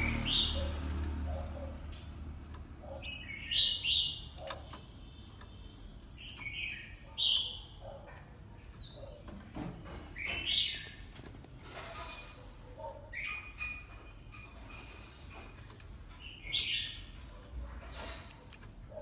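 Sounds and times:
sharp bird clicks: 0.0s - 7.7s.

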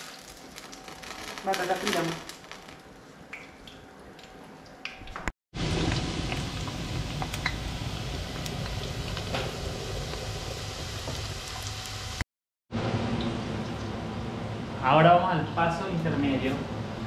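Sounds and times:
oil sizzling with crackling pops: 0.0s - 12.2s.

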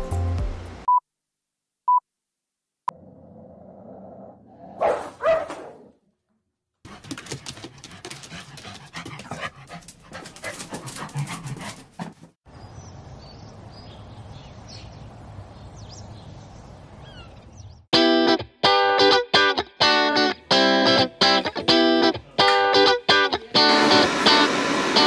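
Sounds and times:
electric guitar music with beat: 18.0s - 25.0s.

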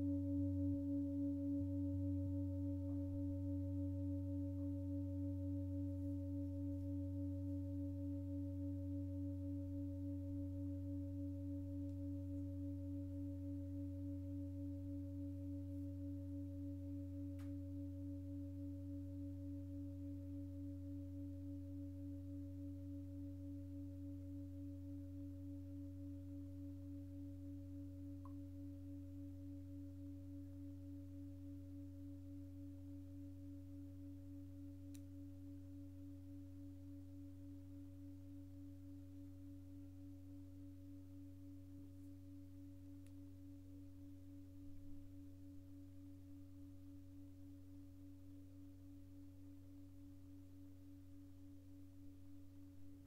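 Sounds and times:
singing bowl ringing: 0.0s - 21.9s.

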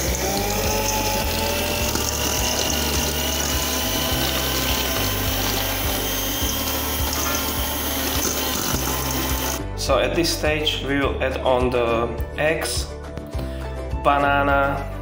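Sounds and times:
electric hand mixer whining: 0.0s - 9.6s.

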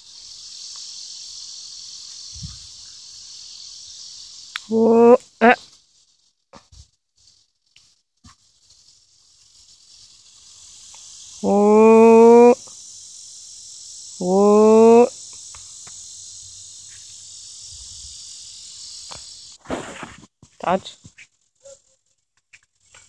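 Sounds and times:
high-pitched insect drone: 0.0s - 7.5s, 8.3s - 23.0s
drawn-out voice call: 4.7s - 5.6s, 11.4s - 12.6s, 14.2s - 15.1s.

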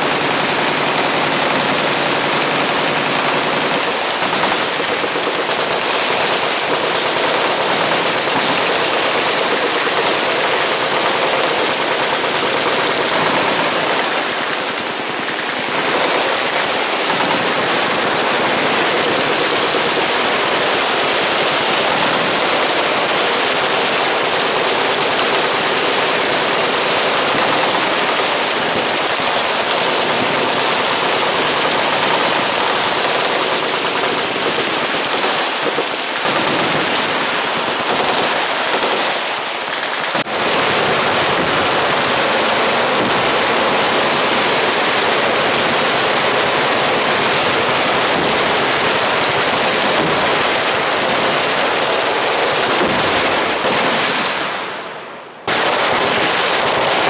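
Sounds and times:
machine guns firing: 0.0s - 54.8s, 55.4s - 57.0s.

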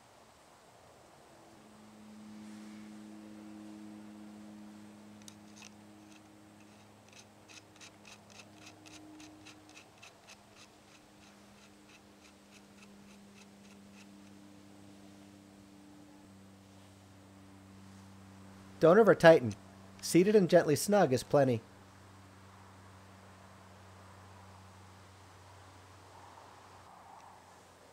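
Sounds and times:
steady low hum: 0.0s - 27.9s
small metallic clicks: 5.2s - 14.4s.

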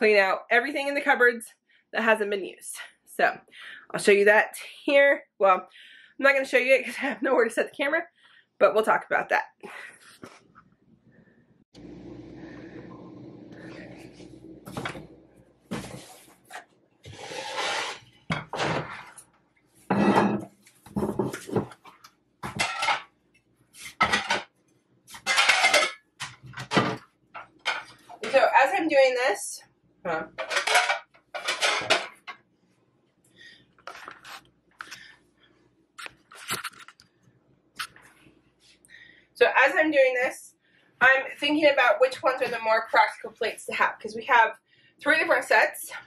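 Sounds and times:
low steady hum: 11.8s - 15.9s
kitchenware clattering: 17.1s - 19.2s, 19.9s - 23.1s, 23.9s - 24.5s, 25.1s - 28.5s, 30.2s - 32.4s
ceramic plates clattering: 19.9s - 21.7s, 22.4s - 23.1s, 25.2s - 26.0s, 30.4s - 32.3s.

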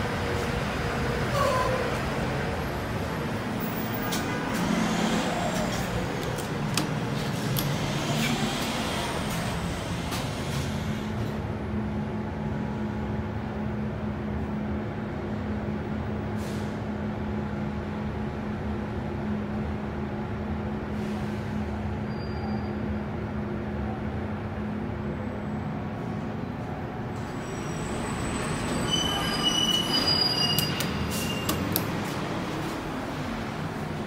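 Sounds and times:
street traffic: 0.0s - 34.0s
elevator cab humming: 1.2s - 12.7s.

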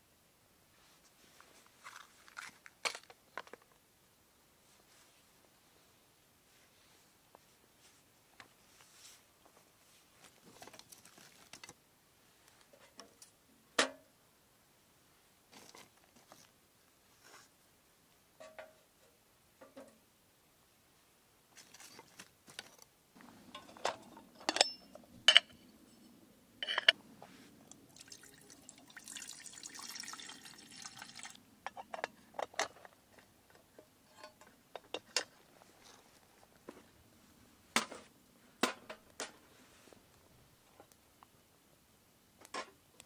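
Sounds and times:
water pouring into kettle: 27.7s - 31.4s.

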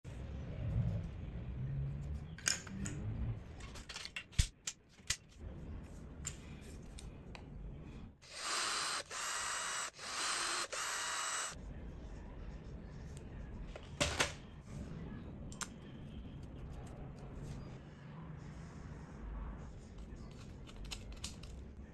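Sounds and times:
cordless drill whirring: 8.3s - 11.6s.

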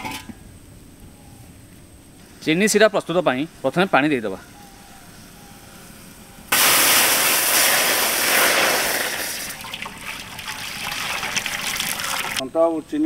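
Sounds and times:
water pouring into pot: 6.6s - 12.4s.

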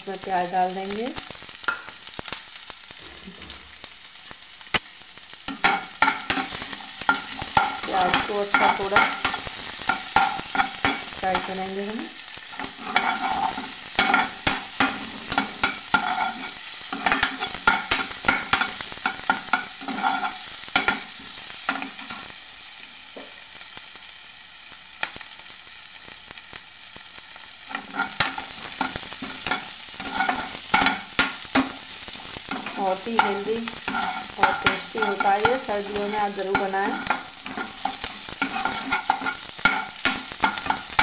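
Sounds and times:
onions sizzling in a pan: 0.0s - 41.0s
spatula scraping a pan: 5.5s - 11.6s, 12.3s - 22.3s, 27.7s - 41.0s.

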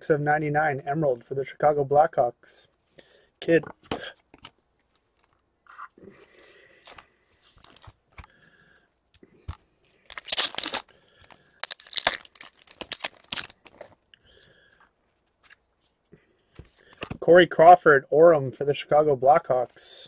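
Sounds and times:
wrapper crinkling: 6.8s - 8.0s, 10.0s - 14.0s
foil pack tearing: 10.1s - 10.9s, 11.6s - 13.9s.

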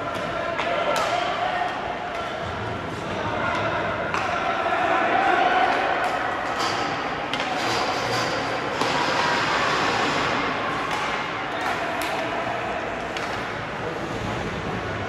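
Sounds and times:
spectators' voices: 0.0s - 15.0s
hockey sticks and puck knocking: 5.7s - 12.3s, 13.0s - 13.6s.

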